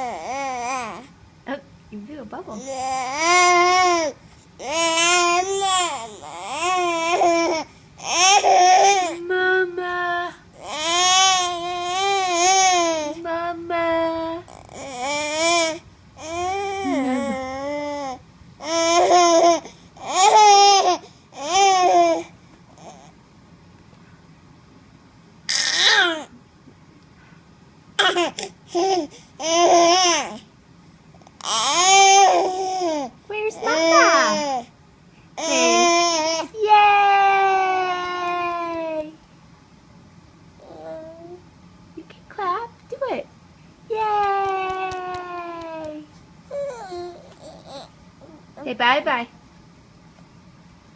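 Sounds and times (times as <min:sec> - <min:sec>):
baby babbling: 0:02.6 - 0:09.2, 0:14.5 - 0:22.2, 0:33.6 - 0:34.6, 0:35.4 - 0:36.5, 0:40.6 - 0:41.4, 0:45.3 - 0:48.4
baby aah vocal calls: 0:25.5 - 0:26.3, 0:33.6 - 0:34.6, 0:35.4 - 0:38.6.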